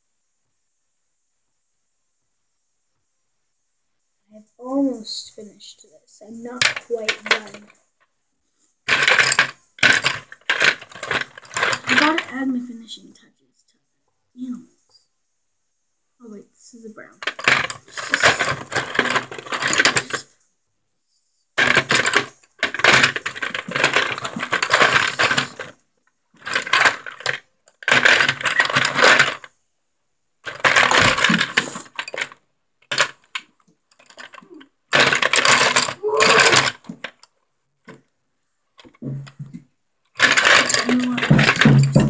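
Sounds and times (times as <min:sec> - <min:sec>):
paintbrushes clattering on tabletop: 0:06.4 - 0:07.8, 0:08.9 - 0:12.3, 0:17.2 - 0:20.3, 0:21.6 - 0:25.8, 0:26.4 - 0:29.5, 0:30.4 - 0:38.1, 0:38.8 - 0:42.0.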